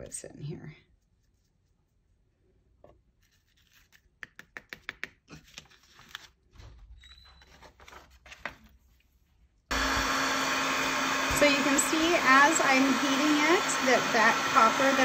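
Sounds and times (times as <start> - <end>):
paper taps and rustles: 7.5 - 8.8
heat gun blowing: 9.7 - 15.0.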